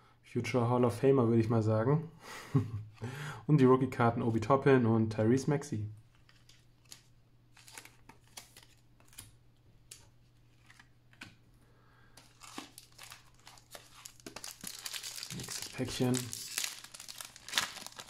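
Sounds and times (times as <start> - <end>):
trading cards and foil packs rustling: 6.1 - 9.3, 12.2 - 18.0.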